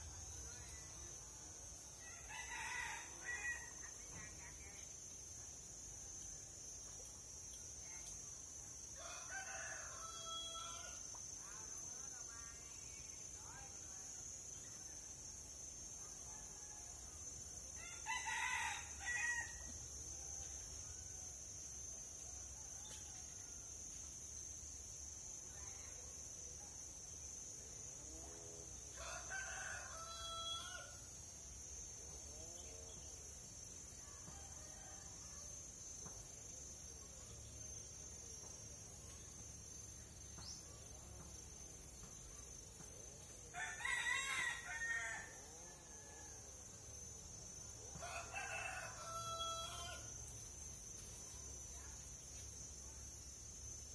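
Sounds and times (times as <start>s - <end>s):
rooster crowing: 9.0s - 11.0s, 29.0s - 31.0s, 43.5s - 45.9s, 47.9s - 50.1s.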